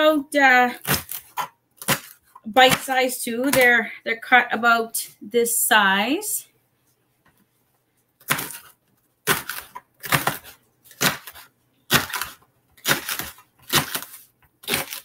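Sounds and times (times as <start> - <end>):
knife chopping celery: 0.6 - 3.8, 8.2 - 15.0.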